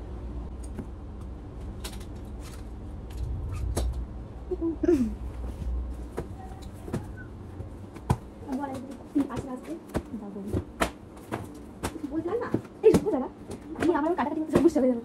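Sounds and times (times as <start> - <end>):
steady low hum: 0.0 - 15.0
books knocking and rustling: 6.1 - 14.8.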